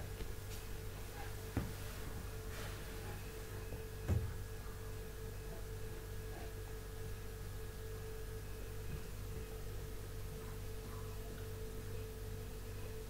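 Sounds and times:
low electrical hum: 0.0s - 13.0s
soft low thump: 4.0s - 4.4s.

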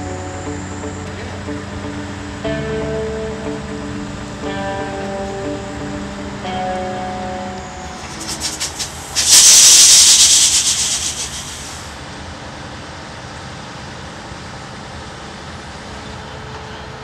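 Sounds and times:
low background noise: 0.0s - 17.0s
loud fluttering hiss: 8.0s - 11.9s.

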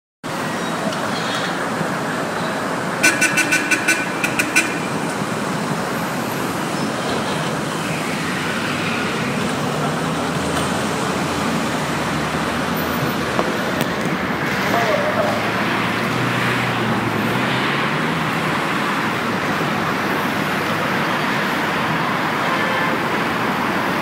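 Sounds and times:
road traffic: 0.2s - 24.0s
short horn toots: 3.0s - 5.0s.

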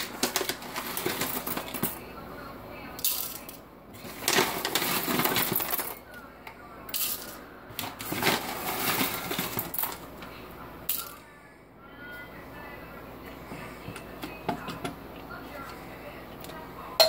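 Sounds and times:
coffee beans clattering into grinder: 0.0s - 2.0s, 4.1s - 5.9s, 7.0s - 10.0s.

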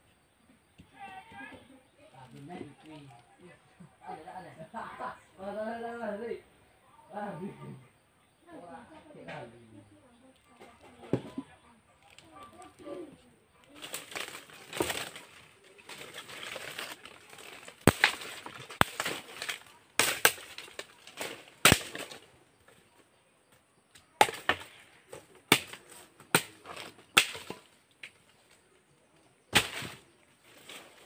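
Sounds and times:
rustling: 12.0s - 22.9s, 29.5s - 31.0s
blade chopping bamboo: 15.9s - 22.2s, 24.2s - 24.8s, 25.5s - 27.7s, 29.5s - 30.0s.

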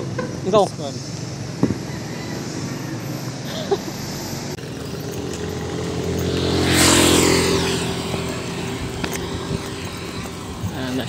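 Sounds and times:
motorcycle engine passing: 4.6s - 11.0s.

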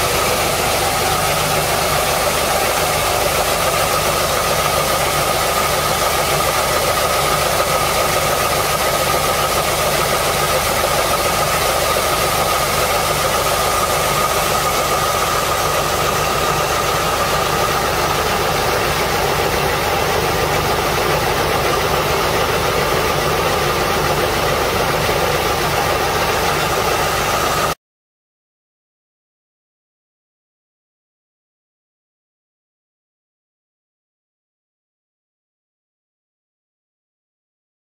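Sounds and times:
constant high whine: 0.0s - 27.8s
grain auger machinery running: 0.0s - 27.8s.

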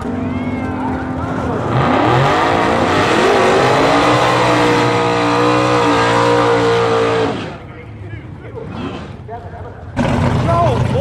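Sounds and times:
race car engine revving: 0.0s - 7.7s, 9.9s - 11.0s.

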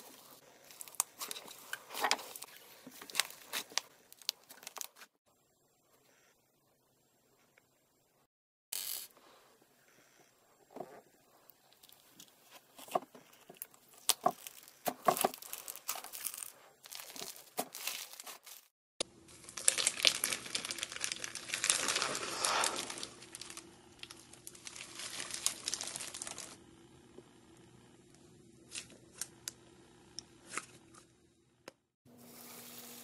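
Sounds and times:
slime crackling and popping: 19.4s - 26.6s.

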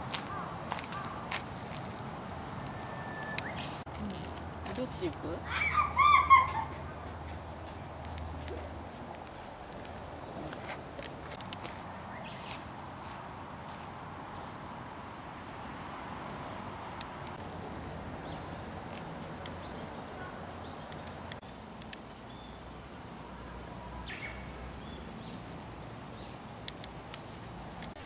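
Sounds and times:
bird chirps: 2.7s - 3.9s
high insect whine: 9.4s - 27.9s
sharp clicks: 20.9s - 22.1s.

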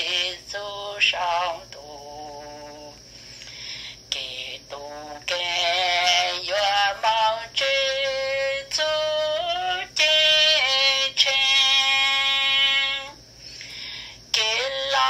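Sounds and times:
singer breathing: 3.0s - 4.1s, 13.3s - 14.3s
high voice singing: 4.1s - 13.2s.

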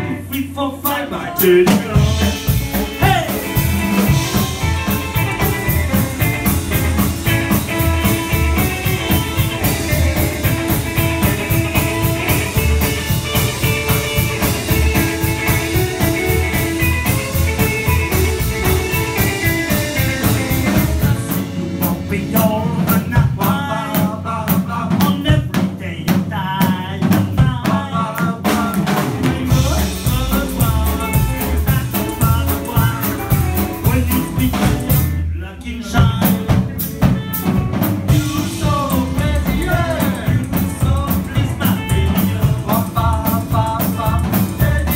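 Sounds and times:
live rock band playing: 0.0s - 44.9s
person singing: 0.0s - 44.9s.

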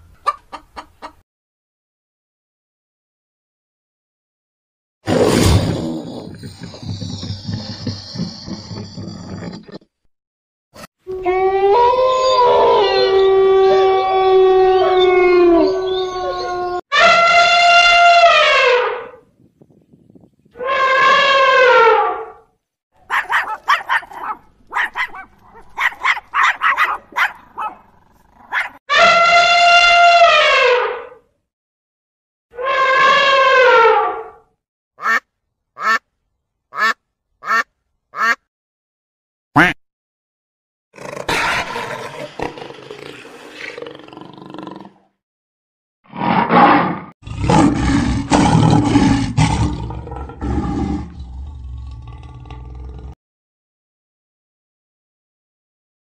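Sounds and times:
elephant trumpeting: 16.9s - 19.2s, 28.5s - 31.1s
small dog barking: 23.0s - 28.8s
lion roaring: 41.0s - 45.1s, 46.1s - 53.2s.

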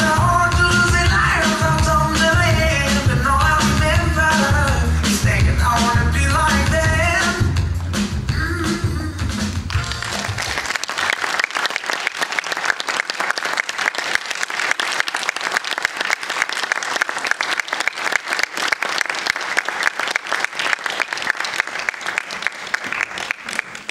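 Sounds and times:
dance music: 0.0s - 10.6s
audience applauding: 9.6s - 23.9s.

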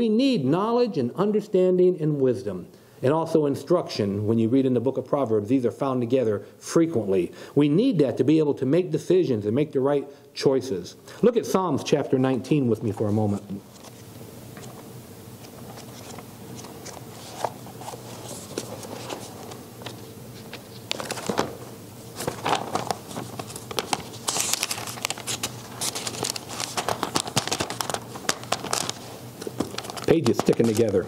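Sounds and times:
thin pages rustling: 13.3s - 14.0s, 15.4s - 31.0s.

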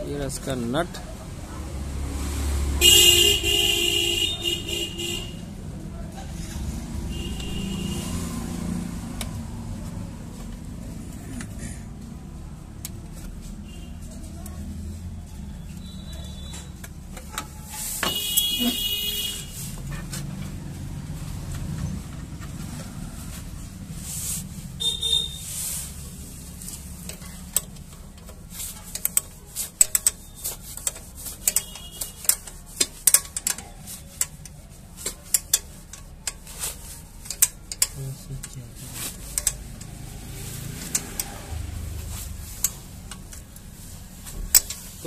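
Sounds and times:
wrench clicking on metal bolt: 30.8s - 36.6s, 37.2s - 38.0s, 39.3s - 40.0s.

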